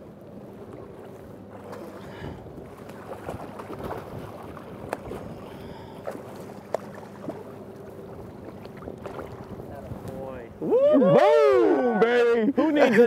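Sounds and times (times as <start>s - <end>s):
boat motor humming: 0.0s - 13.0s
water sloshing along hull: 0.0s - 13.0s.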